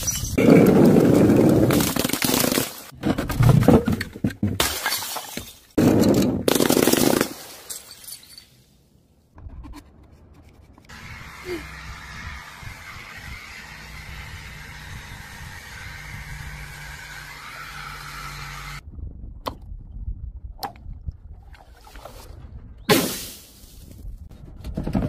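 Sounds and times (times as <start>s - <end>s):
glass smashing on tiles: 4.6s - 6.2s, 7.2s - 8.6s.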